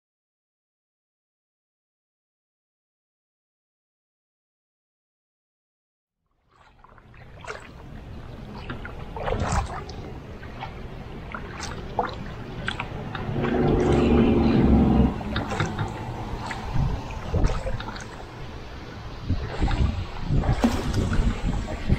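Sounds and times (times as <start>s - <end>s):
paddle strokes splashing water: 6.4s - 21.9s
water dripping off blades: 11.4s - 18.2s
low rumble: 12.7s - 21.9s.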